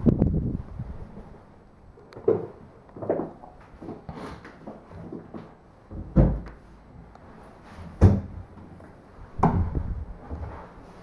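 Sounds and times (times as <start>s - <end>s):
dull thumps: 9.4s - 10.5s.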